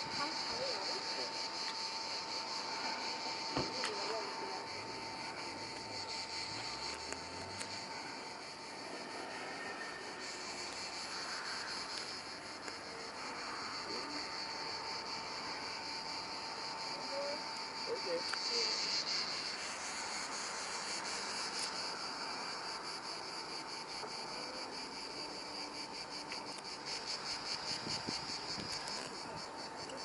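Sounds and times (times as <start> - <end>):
cicadas chirring: 0.0 - 30.0.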